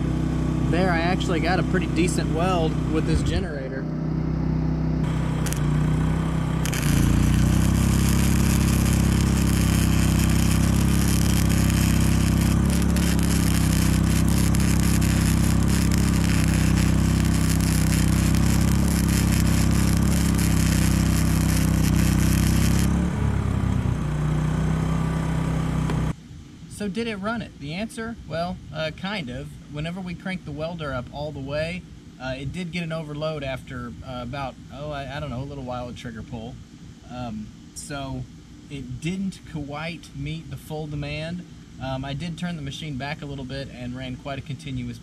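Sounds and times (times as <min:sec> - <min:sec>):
generator engine running: 0:00.0 - 0:26.1
welding arc crackling: 0:05.0 - 0:23.2.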